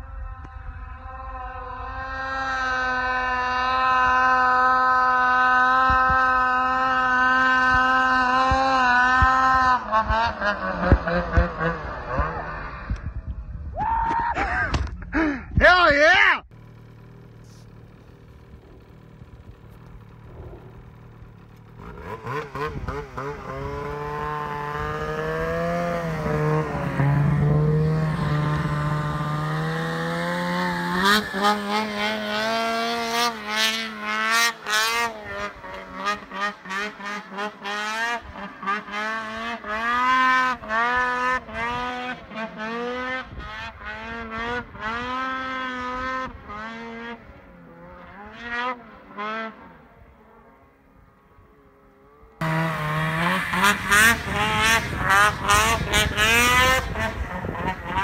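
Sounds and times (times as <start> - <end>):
snowmobile engine revving: 0.0 - 13.2, 16.0 - 50.8, 51.7 - 58.0.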